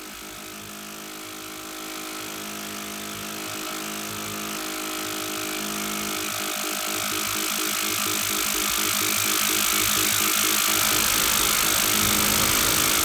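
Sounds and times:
modular synthesizer drone: 0.0s - 13.0s
fluttering bass: 7.2s - 13.0s.

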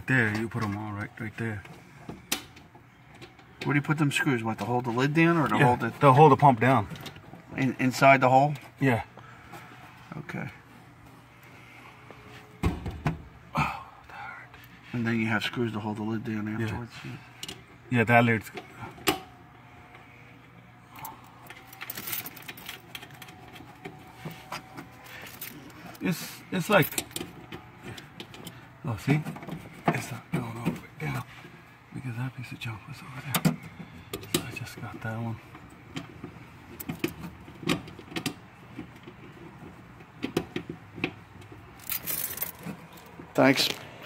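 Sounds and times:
metallic clinks and rattles: 21.0s - 23.4s, 41.8s - 43.8s.

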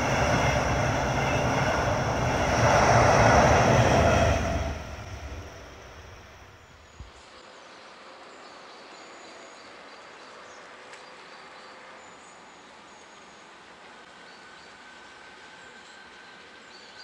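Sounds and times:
diesel train rumbling: 0.0s - 7.0s
outdoor background noise: 0.0s - 17.0s.

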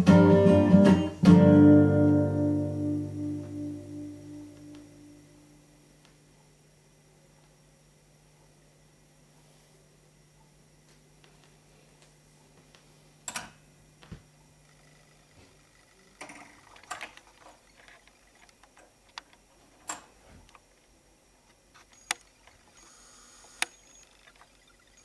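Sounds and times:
low hum: 1.6s - 7.4s.

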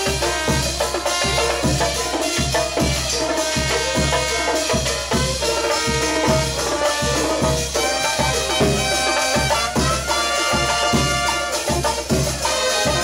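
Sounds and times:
banda dance music over speakers: 0.0s - 13.0s.

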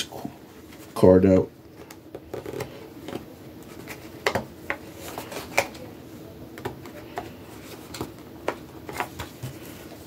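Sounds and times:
handling box packaging: 6.6s - 10.0s.

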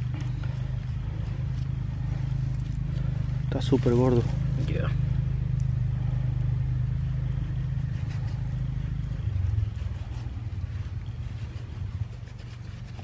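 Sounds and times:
engine hum: 0.0s - 13.0s.

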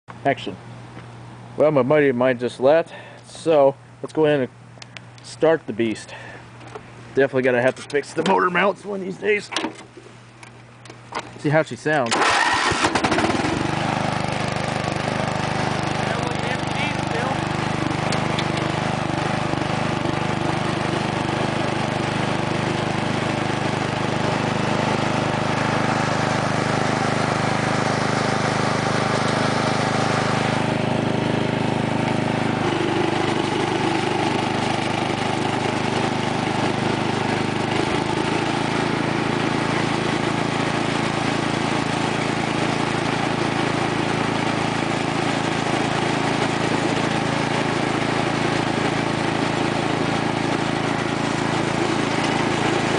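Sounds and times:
lawn tractor engine running: 12.0s - 52.9s.

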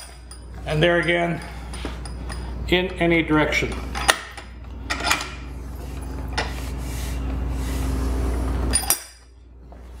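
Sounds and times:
vise handle metal clinks: 0.0s - 2.6s, 8.7s - 9.4s
steady low hum: 0.0s - 10.0s.

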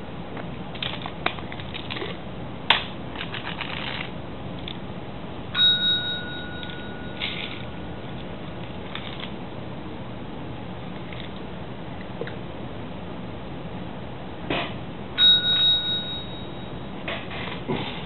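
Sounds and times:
cat crunching a treat: 0.8s - 2.2s, 8.5s - 9.3s
desk call bell ringing: 5.6s - 7.9s, 15.2s - 17.0s.

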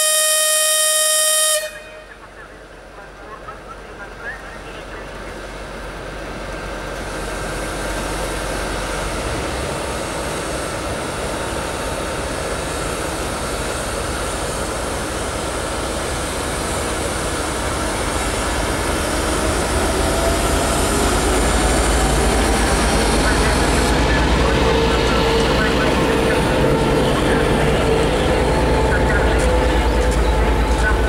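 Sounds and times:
diesel locomotive engine running: 0.0s - 31.0s.

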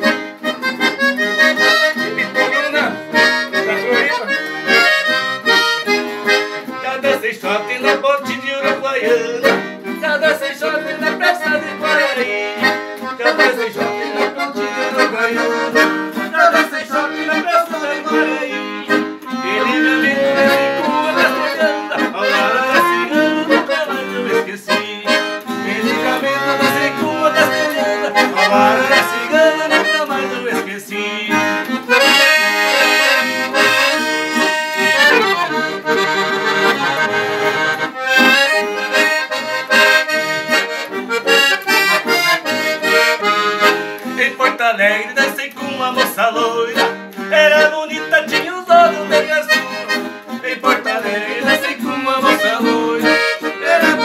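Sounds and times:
accordion playing lively tune: 0.0s - 54.0s.

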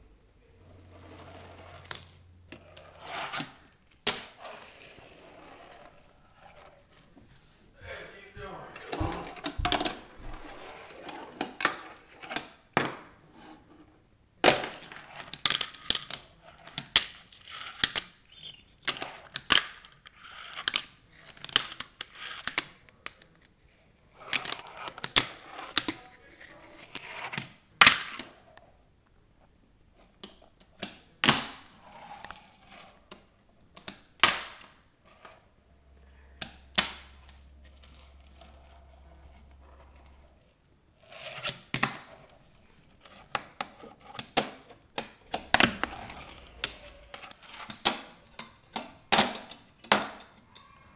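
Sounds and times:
fingerboard wheels rolling: 0.6s - 7.2s, 8.8s - 12.6s, 31.7s - 33.2s, 37.2s - 50.3s.

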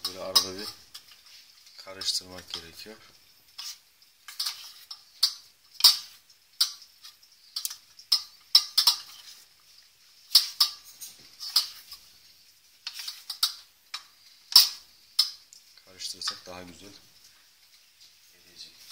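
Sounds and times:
spoon scraping metal bowl: 3.6s - 9.4s, 10.3s - 12.1s, 12.8s - 15.4s.

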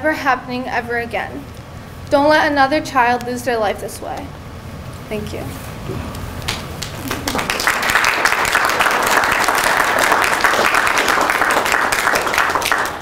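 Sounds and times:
crowd applauding: 6.5s - 13.0s.

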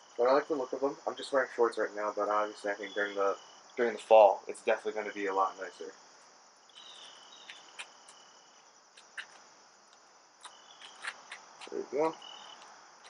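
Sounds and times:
insects chirring: 0.0s - 13.0s.

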